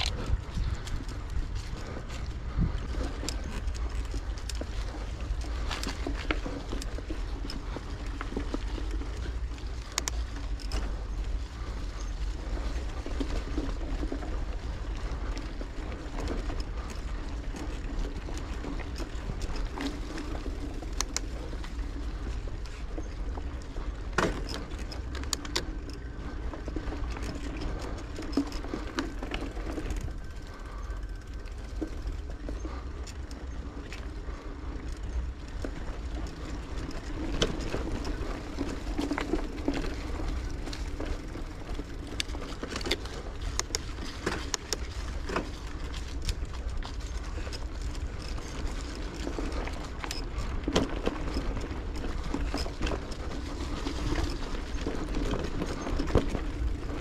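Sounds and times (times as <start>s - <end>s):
wind on microphone: 0.0s - 8.0s
bike clicks and rattles: 0.0s - 57.0s
tyres rolling on path: 0.0s - 57.0s.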